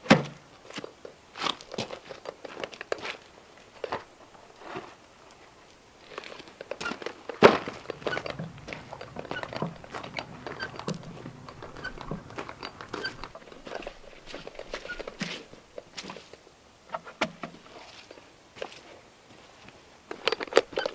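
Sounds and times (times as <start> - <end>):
footsteps on gravel: 6.0 - 16.3.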